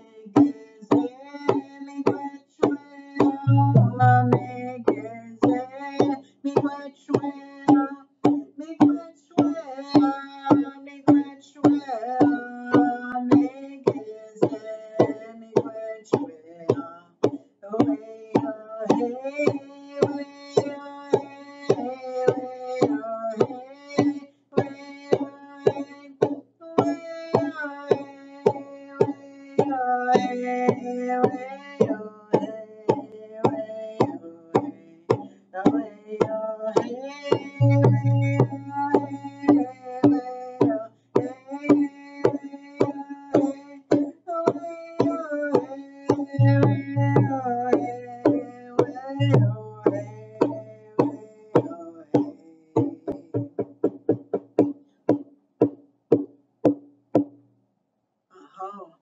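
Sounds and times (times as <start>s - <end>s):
drum beating steadily: 3.4s - 6.2s, 37.4s - 39.7s, 46.4s - 57.3s
person singing long gliding notes: 3.5s - 5.1s, 37.6s - 39.4s, 46.4s - 48.0s.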